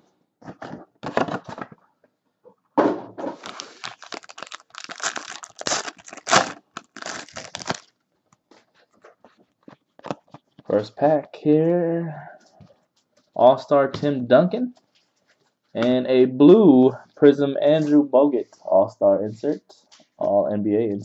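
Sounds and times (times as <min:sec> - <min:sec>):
foil wrapper tearing and crinkling: 0:03.4 - 0:08.0.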